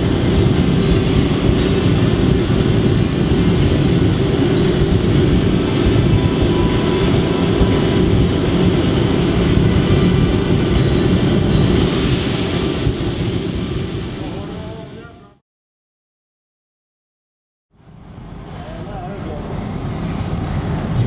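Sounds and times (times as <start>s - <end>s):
furnace burners roaring: 0.0s - 15.1s
ventilation running: 0.0s - 15.4s
high hiss: 11.8s - 15.2s.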